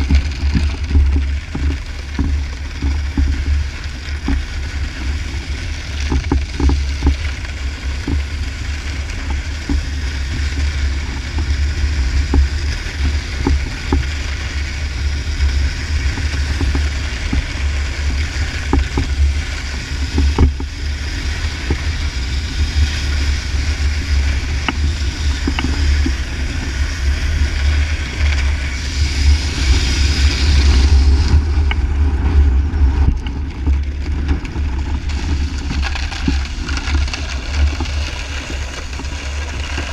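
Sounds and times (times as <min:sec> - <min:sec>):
snowboard sliding on ice: 0:00.0 - 0:39.9
wind buffeting microphone: 0:00.0 - 0:39.9.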